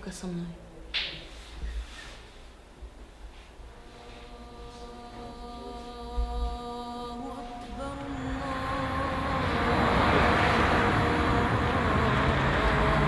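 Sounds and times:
drone-like musical tone: 0:03.4 - 0:13.0
street traffic rumble: 0:03.7 - 0:13.0.

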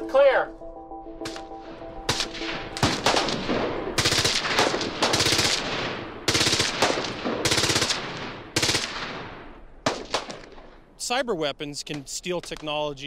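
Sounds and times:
rifle firing automatic bursts: 0:02.8 - 0:09.2.

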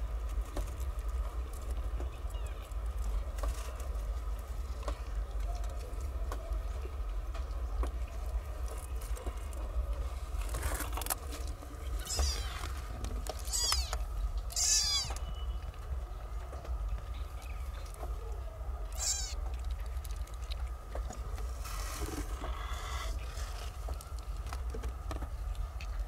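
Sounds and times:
low steady hum: 0:00.0 - 0:26.0
kittens mewing: 0:11.9 - 0:15.3, 0:18.8 - 0:19.6.

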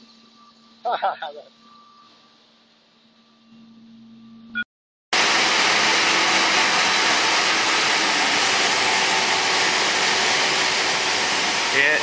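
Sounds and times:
faint hum: 0:00.0 - 0:04.6
loud machinery hiss: 0:05.2 - 0:12.0.

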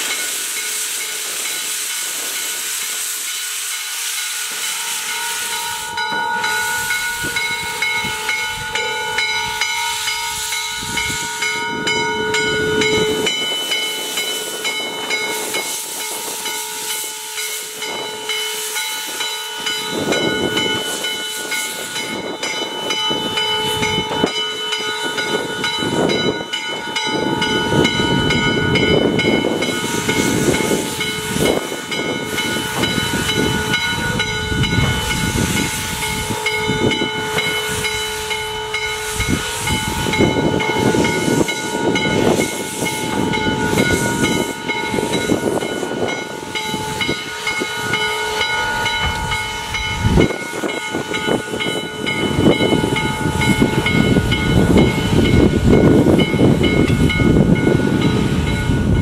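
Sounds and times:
steam hissing: 0:00.0 - 0:59.0
steam locomotive exhaust beats: 0:00.0 - 0:59.0.

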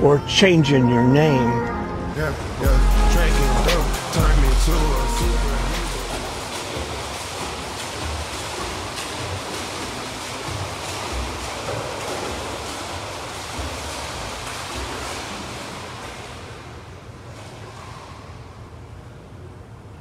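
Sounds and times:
swimmer splashing: 0:02.2 - 0:19.5.

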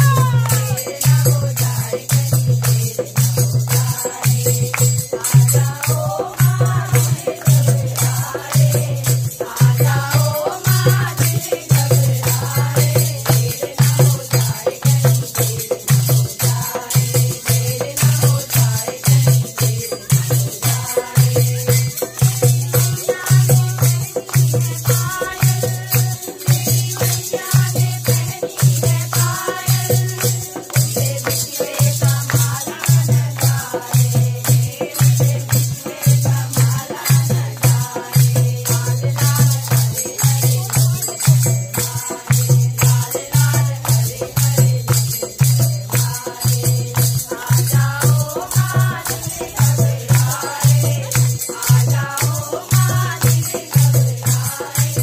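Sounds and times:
person singing: 0:00.0 - 0:01.4
drum beating: 0:00.0 - 0:55.0
jangling hand percussion: 0:00.0 - 0:55.0.

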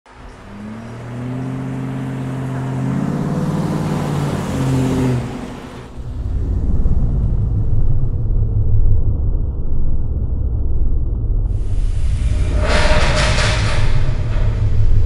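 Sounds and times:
car engine driving up: 0:00.1 - 0:15.0
deep pulsing engine rumble: 0:00.1 - 0:15.0.

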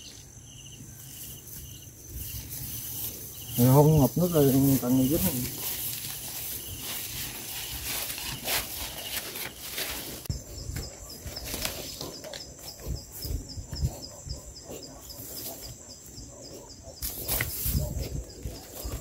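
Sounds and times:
insect chirping: 0:00.0 - 0:19.0
rustling handling noise: 0:02.2 - 0:12.8.

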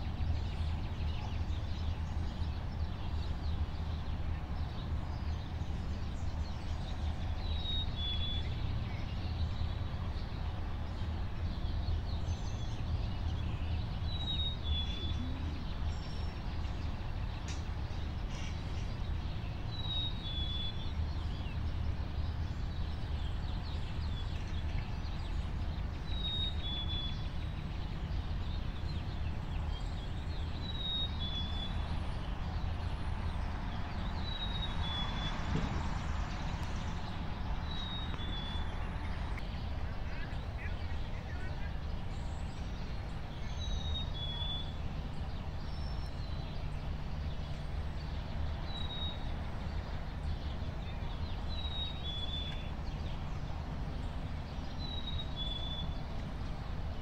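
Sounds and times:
low background rumble: 0:00.0 - 0:57.0
faint bird chirps and whistles: 0:07.4 - 0:09.0, 0:26.0 - 0:27.4, 0:29.7 - 0:31.9.

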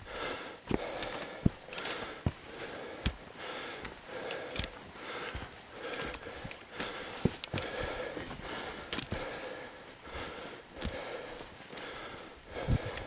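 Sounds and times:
footsteps on dirt trail: 0:00.0 - 0:13.0
person breathing: 0:00.0 - 0:13.0.

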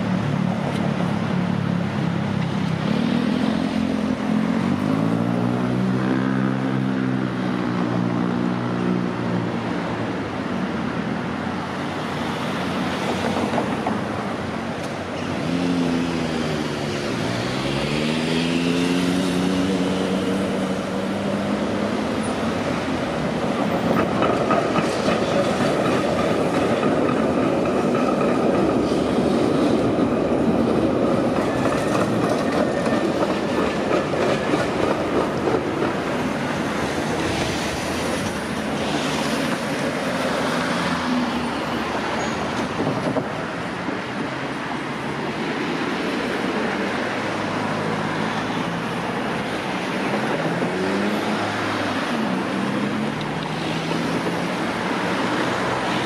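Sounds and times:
tram traction whine: 0:00.0 - 0:56.0
wheels rumbling on rail: 0:00.0 - 0:56.0.

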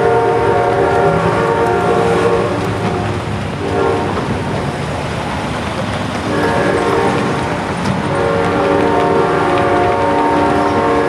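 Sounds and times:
locomotive air horn chord: 0:00.0 - 0:04.2, 0:06.2 - 0:07.4, 0:08.0 - 0:11.0.

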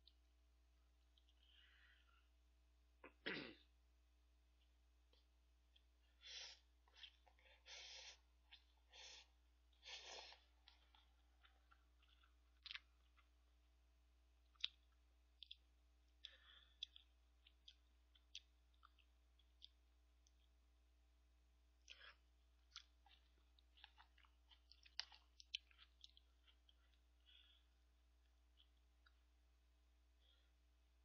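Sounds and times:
mouth noises of eating: 0:04.6 - 0:13.8, 0:14.4 - 0:20.7, 0:21.8 - 0:31.0.

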